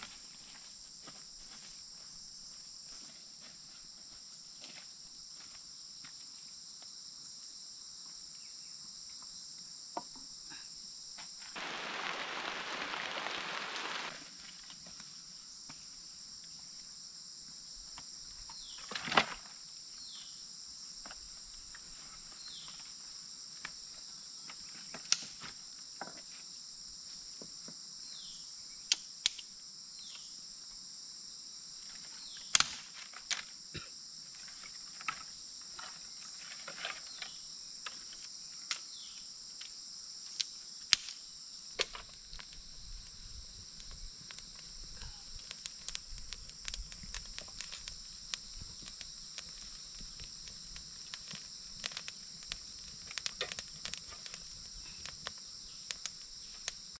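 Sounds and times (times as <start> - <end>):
insects droning: 0.0 - 57.0
rustling: 11.6 - 14.2.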